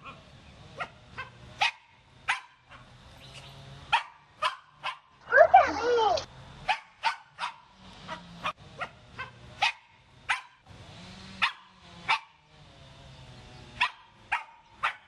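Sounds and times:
dog yapping: 0.8 - 2.9, 3.9 - 10.6, 11.4 - 12.4, 13.8 - 15.0.

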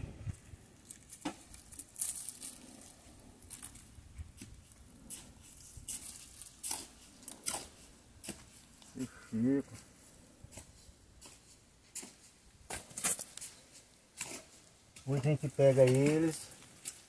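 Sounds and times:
dry palm leaves rustling and tearing: 0.3 - 7.8, 12.7 - 17.0.

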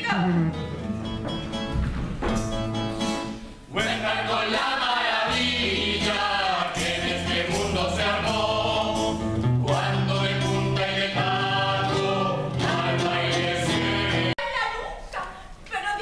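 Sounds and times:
music: 0.0 - 14.4
men and women singing in chorus: 3.7 - 14.8.

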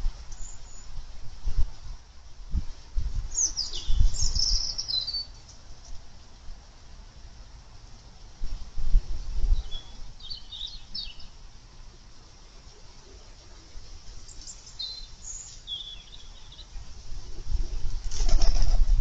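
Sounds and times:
small birds chirping: 0.0 - 0.9, 3.3 - 6.0, 9.5 - 11.4, 12.2 - 17.0
pigeon wing flaps: 17.3 - 19.0.

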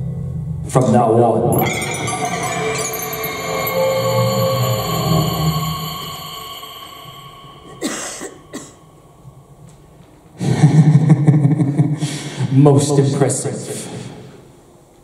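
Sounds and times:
backing-track music: 1.5 - 9.4
person coughing: 7.8 - 8.8.

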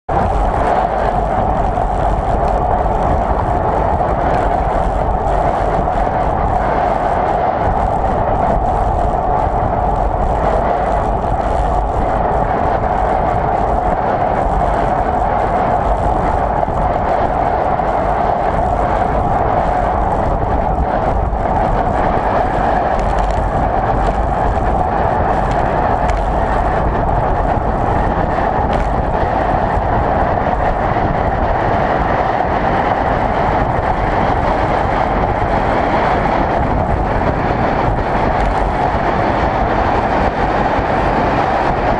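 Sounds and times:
wind rushing over microphone: 0.0 - 41.9
wheels rolling on asphalt: 0.1 - 41.9.

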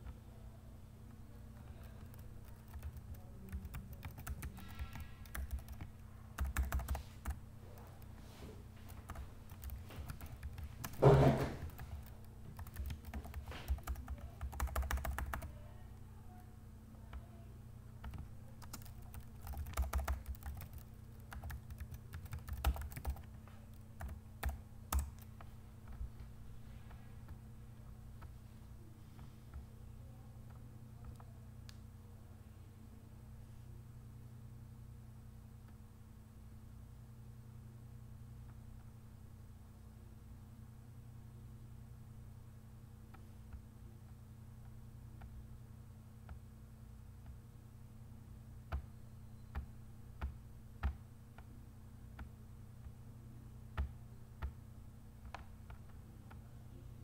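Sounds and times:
steady low hum: 0.0 - 57.0
keyboard typing clicks: 1.6 - 7.4, 8.9 - 15.5, 18.0 - 26.0
loud thump: 11.0 - 11.6.

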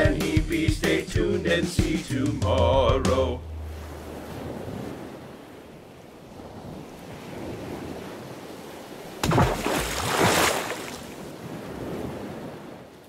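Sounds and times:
ocean surf: 0.0 - 13.0
wind: 2.2 - 13.0
loud wave crash: 3.0 - 5.7.

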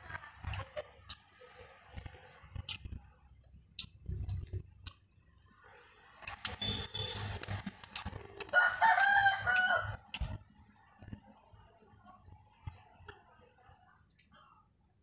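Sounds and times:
chewing and crunching greens: 0.1 - 3.1, 3.7 - 5.1, 6.2 - 11.3
rooster crowing: 8.4 - 10.2.

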